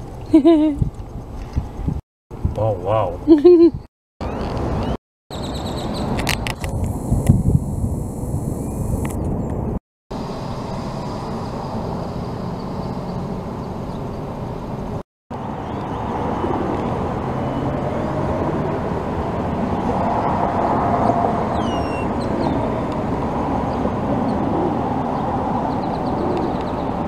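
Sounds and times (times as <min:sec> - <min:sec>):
road traffic rumble: 0:00.0 - 0:27.0
high falling chirps: 0:21.5 - 0:22.5.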